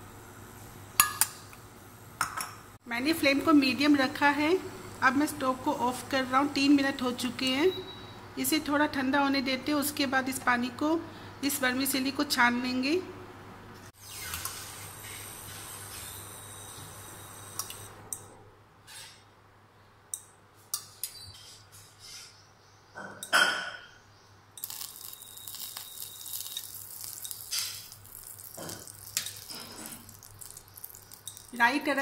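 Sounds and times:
seeds clattering into pan: 24.6s - 31.7s
seeds sizzling in hot oil: 24.6s - 32.0s.

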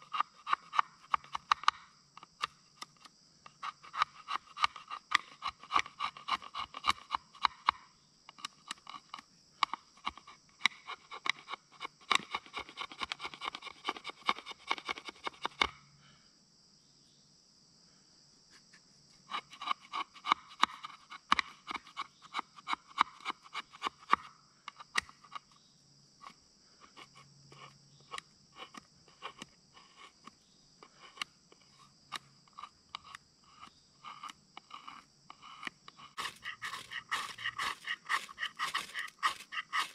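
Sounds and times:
high insect drone: 0.0s - 39.9s
knife strokes: 36.0s - 39.9s.

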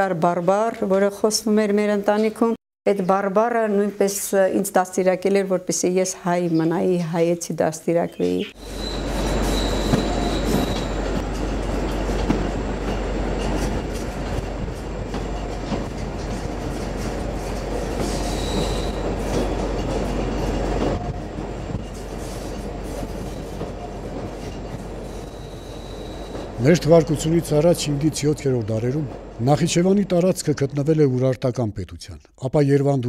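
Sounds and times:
train carriage rumble and rattle: 5.3s - 31.3s
high wheel squeal: 8.6s - 11.2s, 18.0s - 19.6s, 21.8s - 27.4s.

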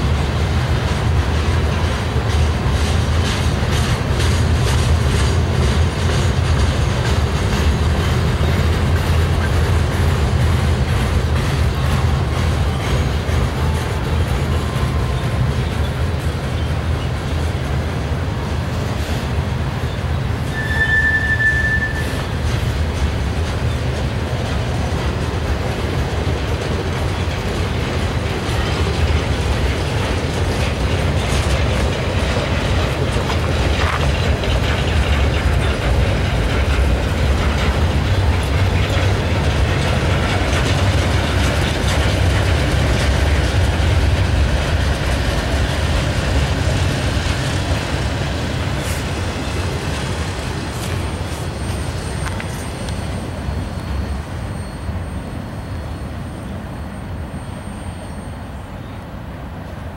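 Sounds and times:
rail joint clicks: 0.0s - 59.9s
train wheels rumbling: 0.0s - 59.9s
high squeal: 19.9s - 22.4s, 47.2s - 59.0s.

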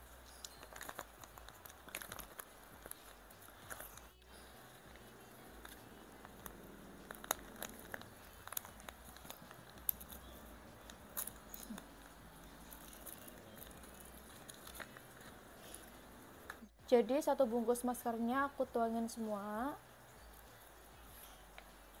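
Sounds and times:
plastic sachet crinkling: 0.0s - 16.7s.

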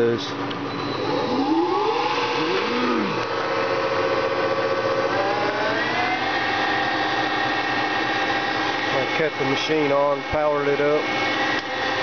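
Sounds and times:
electric motor whining: 0.8s - 9.4s.

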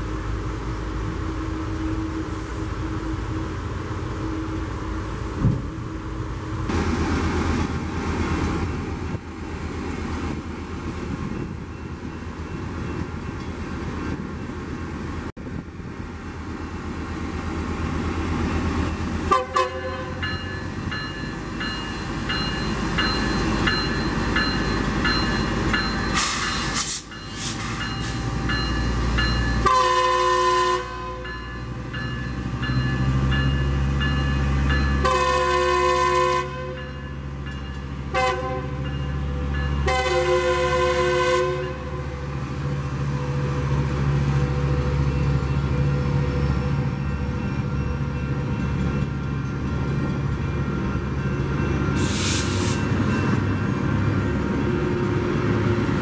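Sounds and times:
diesel train engines running: 0.0s - 56.0s
train bell ringing: 11.2s - 13.7s, 19.8s - 29.9s, 31.0s - 35.2s, 36.6s - 38.1s, 38.7s - 40.0s, 44.4s - 52.2s, 52.8s - 54.7s
train air horn: 19.3s - 20.2s, 29.6s - 31.2s, 35.0s - 36.8s, 38.1s - 38.8s, 39.8s - 42.1s, 52.0s - 52.8s.

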